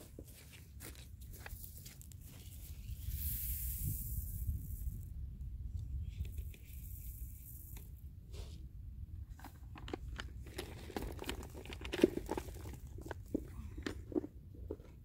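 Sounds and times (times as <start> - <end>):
wind rumble on microphone: 2.2 - 11.1
oats pouring hiss: 2.6 - 5.1, 6.3 - 8.0.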